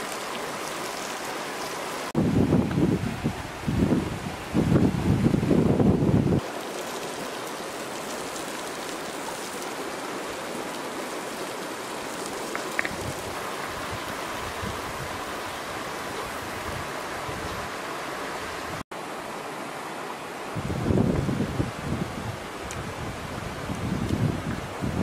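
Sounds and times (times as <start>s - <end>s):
river rushing over rocks: 0.0s - 25.0s
wind buffeting microphone: 2.2s - 6.4s, 12.8s - 17.8s, 20.5s - 25.0s.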